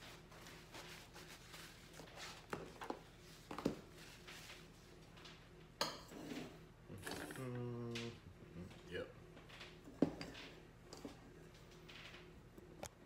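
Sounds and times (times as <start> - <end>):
hands wiped on towel: 0.0 - 2.4.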